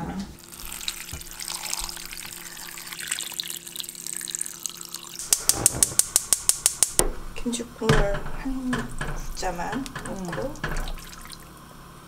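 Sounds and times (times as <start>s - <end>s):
water pouring into pot: 0.4s - 5.5s, 10.2s - 11.7s
sharp clicks: 5.2s - 7.1s.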